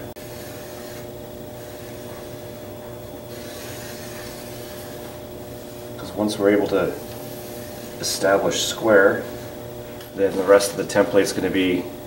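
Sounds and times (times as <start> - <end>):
steady background hum: 0.0 - 12.0
pencil scratching on paper: 0.2 - 5.8, 7.0 - 8.2.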